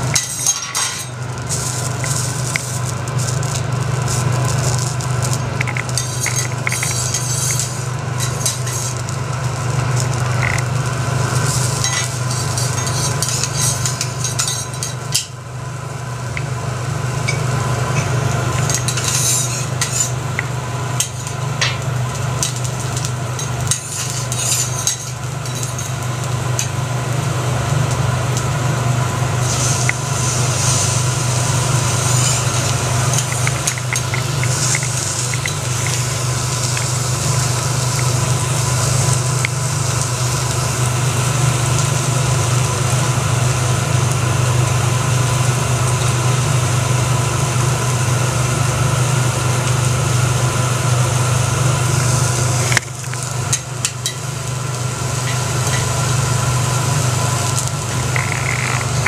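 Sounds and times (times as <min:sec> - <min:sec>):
food sizzling: 0:00.0 - 0:59.0
steady low hum: 0:00.0 - 0:59.0
metal spatulas scraping on griddle: 0:00.2 - 0:01.7, 0:05.6 - 0:09.0, 0:11.4 - 0:15.0, 0:18.6 - 0:20.2, 0:23.7 - 0:25.9, 0:29.4 - 0:31.0, 0:31.9 - 0:36.0.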